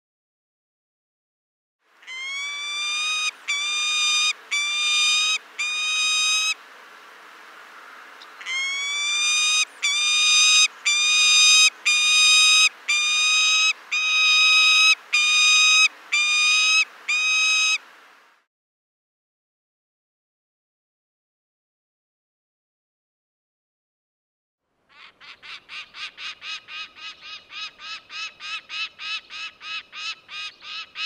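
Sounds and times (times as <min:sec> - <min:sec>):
falcon wailing calls: 0:02.1 - 0:06.6, 0:08.4 - 0:17.8.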